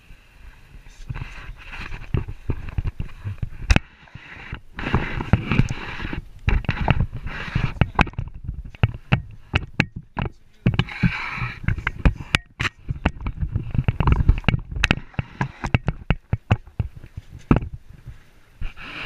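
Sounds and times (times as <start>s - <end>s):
rushing rubbing handling noise: 1.0s - 19.0s.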